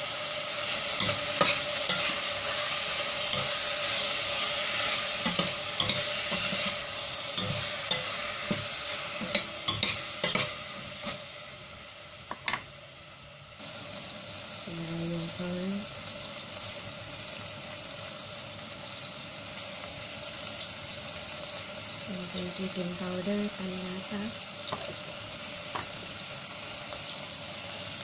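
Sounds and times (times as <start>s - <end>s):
food sizzling in a saucepan: 0.0s - 28.0s
spoon scraping a pot: 0.9s - 11.2s.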